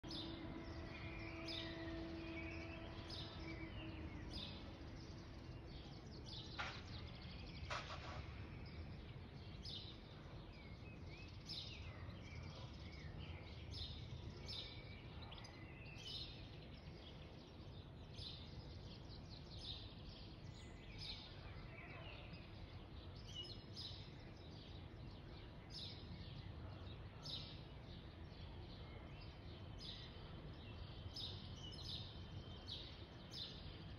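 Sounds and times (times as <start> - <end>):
faint steady hum: 0.0 - 6.2
steady low rumble: 0.0 - 9.4
small birds chirping: 0.0 - 33.9.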